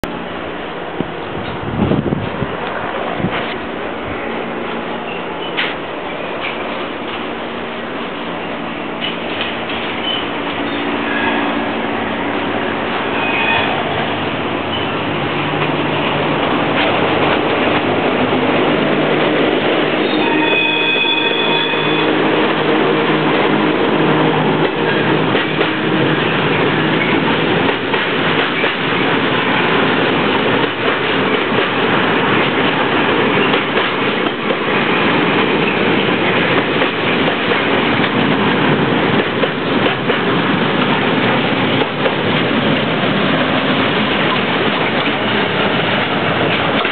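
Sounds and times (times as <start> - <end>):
freight train wheels rumbling: 0.0 - 46.9
brief high ringing tone: 20.0 - 22.1.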